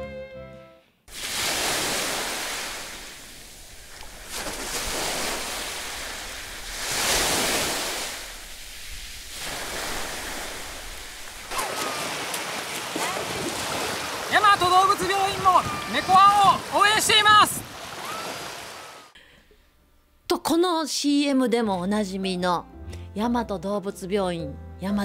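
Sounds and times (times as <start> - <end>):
sea surf washing onto beach: 1.1 - 19.2.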